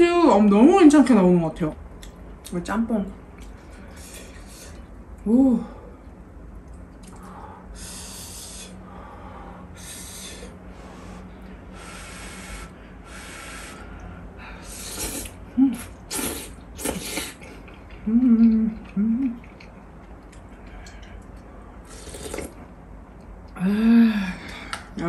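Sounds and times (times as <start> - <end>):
noodles being slurped: 14.7 - 17.9, 21.8 - 22.7
person humming: 18.0 - 19.4.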